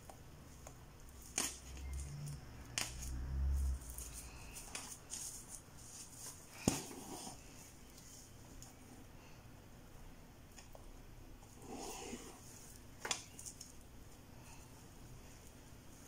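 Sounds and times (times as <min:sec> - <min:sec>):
soft rustling: 0:03.5 - 0:09.1.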